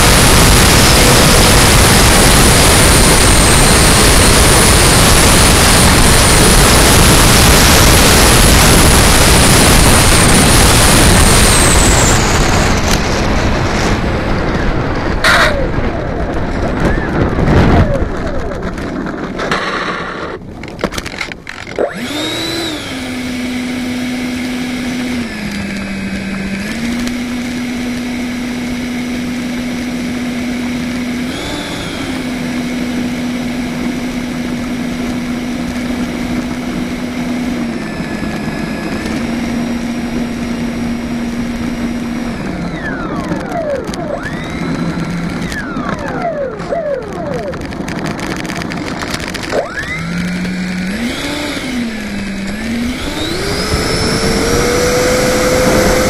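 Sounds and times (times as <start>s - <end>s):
electric ducted fan whine: 0.0s - 56.0s.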